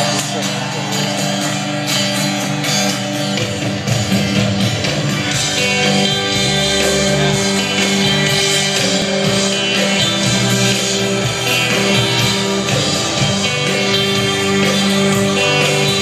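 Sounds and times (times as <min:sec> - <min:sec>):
acoustic guitar strumming: 0:00.0 - 0:16.0
bass notes: 0:04.1 - 0:16.0.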